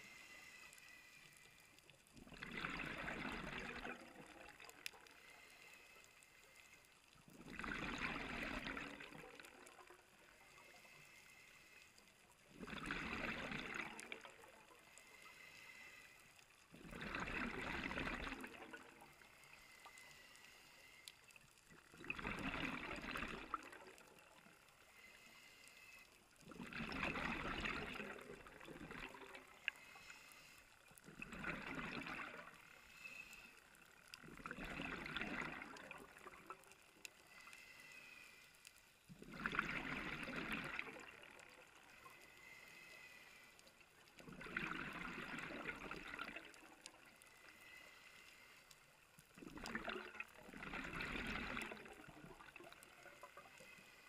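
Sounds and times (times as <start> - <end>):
underwater exhaust bubbles gurgling: 1.4 - 38.0, 39.0 - 54.0.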